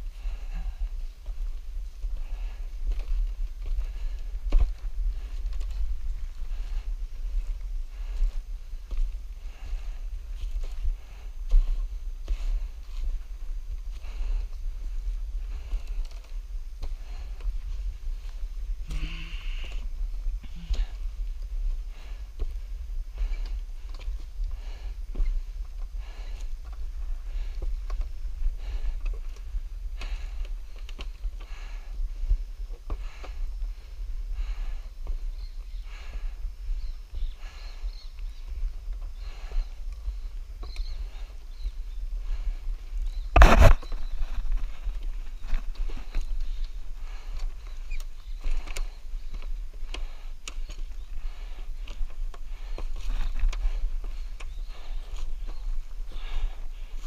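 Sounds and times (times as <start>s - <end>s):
footsteps on ladder rungs: 0.0s - 57.0s
person breathing hard: 0.0s - 57.0s
steady low rumble: 0.0s - 57.0s.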